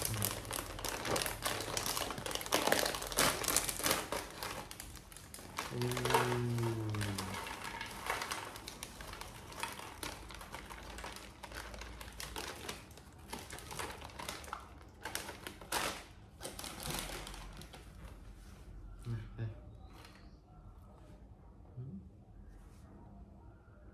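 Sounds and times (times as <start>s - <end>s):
chip packet crinkling: 0.0s - 18.1s.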